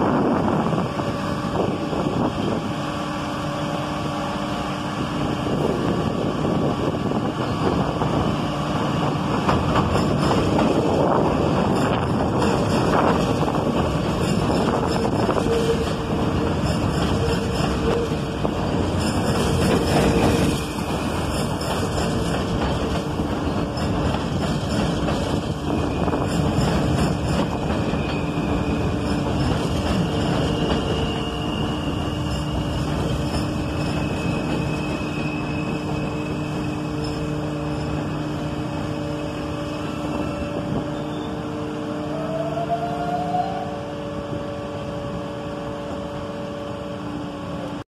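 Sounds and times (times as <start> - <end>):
train wheel-on-rail rumble: 0.0 - 47.8
train brakes squealing: 0.1 - 47.7.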